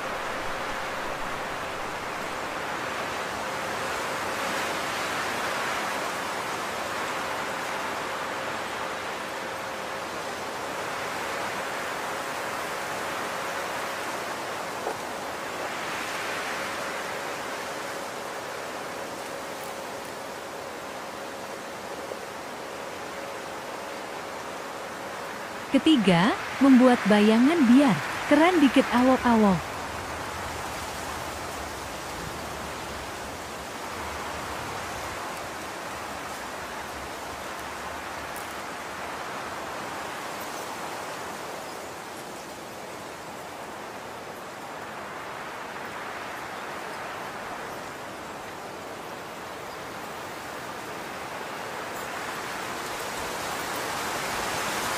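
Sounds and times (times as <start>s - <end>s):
steady background hiss: 0.0s - 54.9s.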